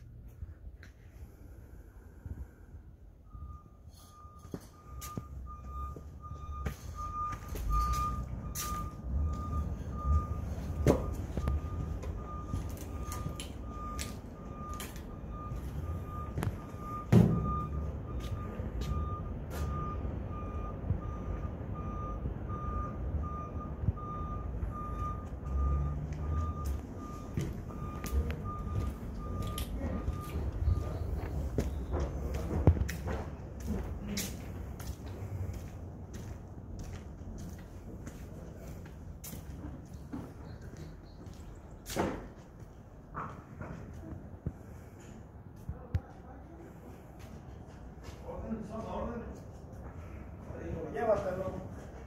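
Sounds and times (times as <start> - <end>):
low engine rumble: 0.0 - 52.0
reversing alarm beeping: 2.3 - 33.8.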